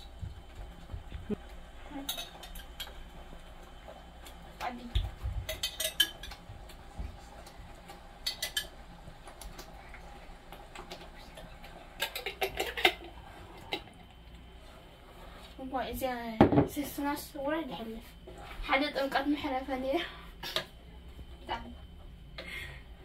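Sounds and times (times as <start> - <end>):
metal utensils clinking: 5.5 - 6.4.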